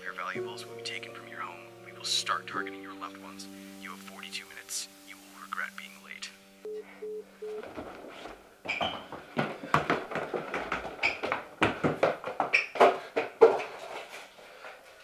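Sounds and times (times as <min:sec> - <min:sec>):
phone busy tone: 0:06.7 - 0:07.6
footsteps on wooden stairs: 0:07.4 - 0:15.0.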